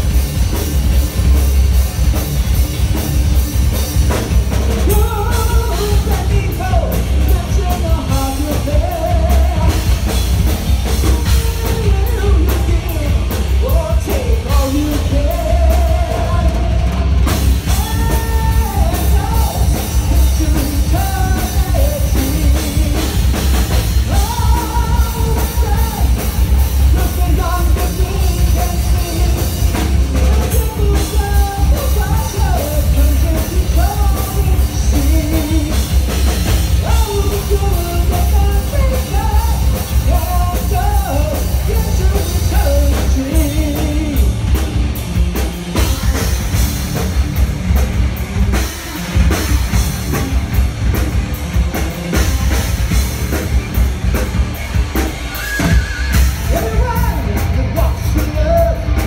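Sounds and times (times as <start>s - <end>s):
live rock band playing: 0.0s - 59.0s
person singing: 4.8s - 10.2s, 10.8s - 44.6s, 55.3s - 59.0s.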